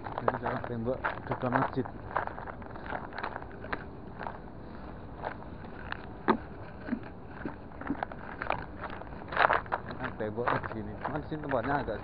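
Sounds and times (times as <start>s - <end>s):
footsteps crunching over rubble: 0.0s - 12.0s
steady background noise: 0.0s - 12.0s.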